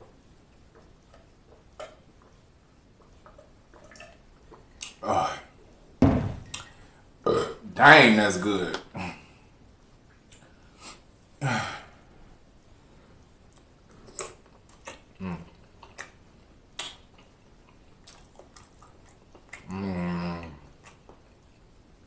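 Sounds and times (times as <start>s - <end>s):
lip smacks while chewing: 13.5s - 19.7s, 20.4s - 21.6s.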